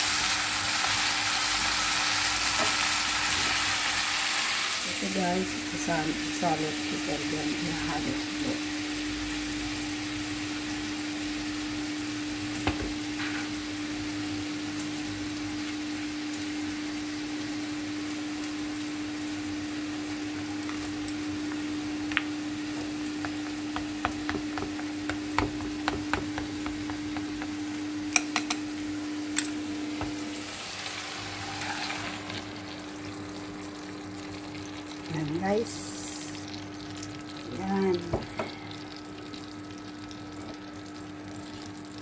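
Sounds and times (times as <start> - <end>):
shrimp sizzling in oil: 0.0 - 42.0
chopsticks clicking on ceramic bowl: 28.1 - 28.6.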